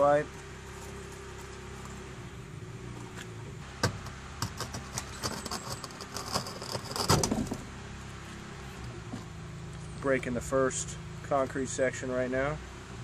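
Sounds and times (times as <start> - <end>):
concrete pipe cracking: 3.8 - 7.6.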